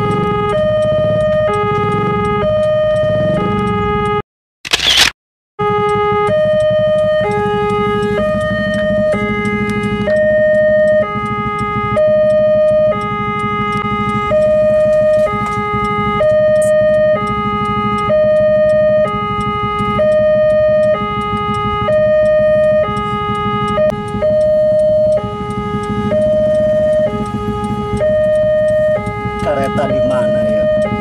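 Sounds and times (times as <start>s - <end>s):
two-tone level crossing alarm: 0.0s - 4.2s, 5.6s - 31.0s
motorbike engines idling: 6.6s - 31.0s.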